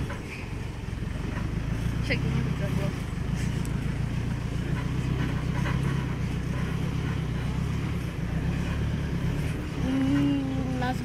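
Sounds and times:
jeep engine running: 0:00.0 - 0:11.0
light knocks and rattles: 0:03.1 - 0:08.8.

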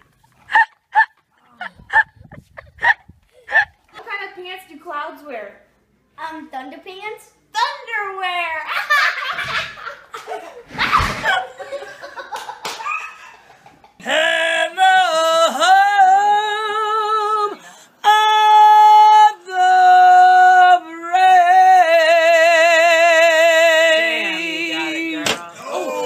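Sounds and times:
woman singing loudly: 0:14.0 - 0:26.0.

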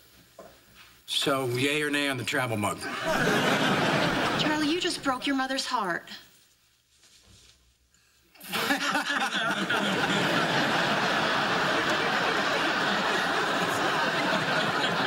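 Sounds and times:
studio audience laughing: 0:02.8 - 0:05.0, 0:08.4 - 0:15.0.

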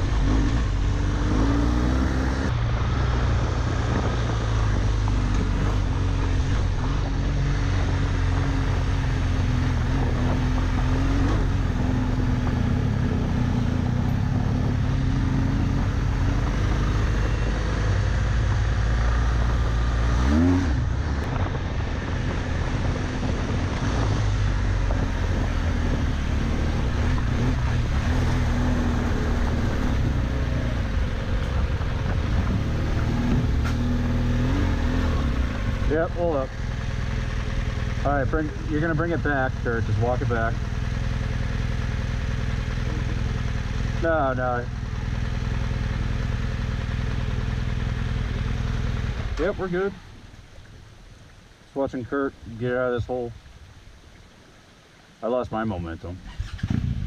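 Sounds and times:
wind noise: 0:00.0 - 0:36.4, 0:56.2 - 0:57.0
motorcycle engine running: 0:00.0 - 0:51.0.

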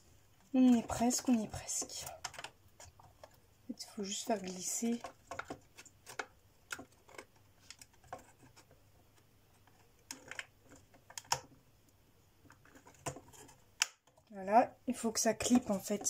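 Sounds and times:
plywood parts clicking and tapping: 0:02.0 - 0:03.4, 0:05.0 - 0:11.6.

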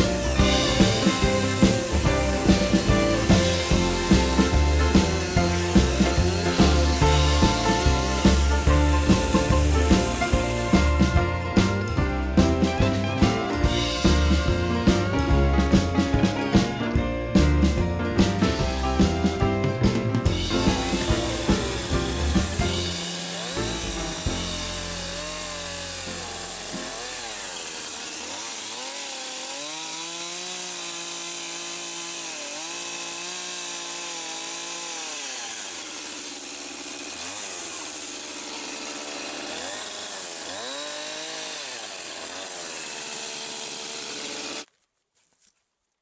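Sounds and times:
chainsaw cutting log: 0:00.0 - 0:17.4, 0:18.2 - 0:45.5.

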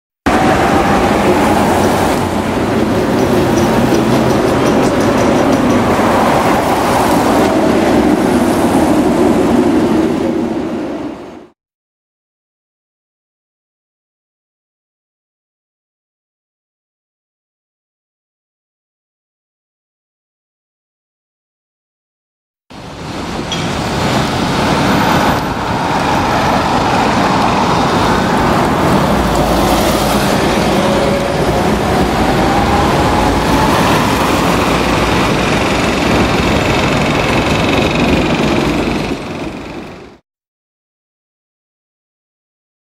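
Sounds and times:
street traffic rumble: 0:00.3 - 0:11.3, 0:22.8 - 0:40.2
bus driving past: 0:00.3 - 0:11.4, 0:22.8 - 0:40.2.

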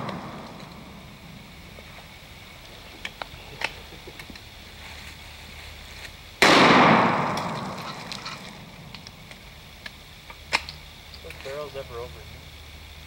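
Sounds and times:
gunshot with echo: 0:06.4 - 0:07.9.

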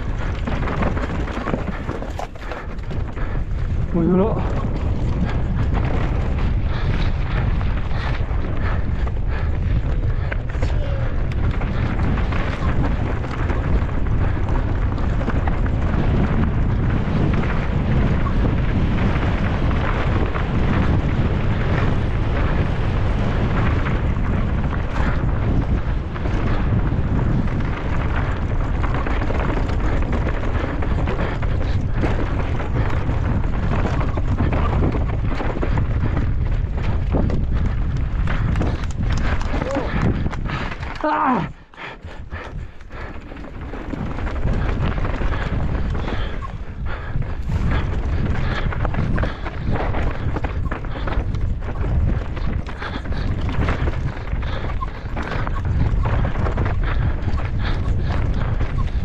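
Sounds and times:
bike rattling: 0:00.0 - 0:59.0
tyres rolling over rocky trail: 0:00.0 - 0:59.0
wind buffeting microphone: 0:00.0 - 0:59.0.

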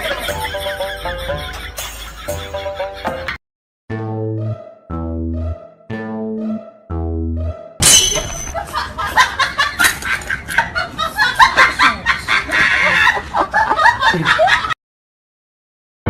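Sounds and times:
high-pitched laughter-like cries: 0:11.4 - 0:13.3.

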